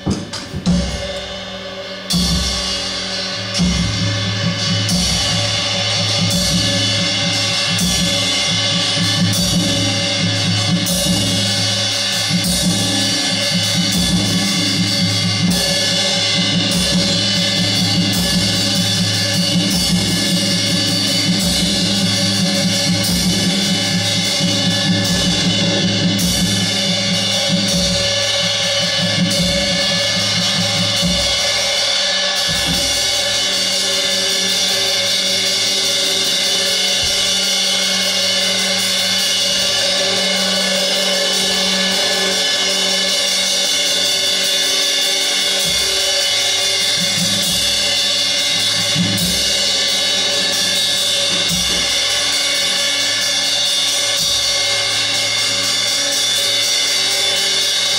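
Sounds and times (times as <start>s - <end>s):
low drum strikes: 0.0s - 1.5s
ringing cymbals and metal: 0.0s - 57.9s.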